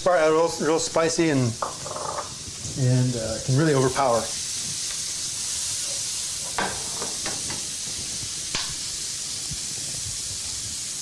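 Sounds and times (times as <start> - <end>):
food sizzling in oil: 0.0 - 11.0
utensil knocking against pan: 6.6 - 7.6.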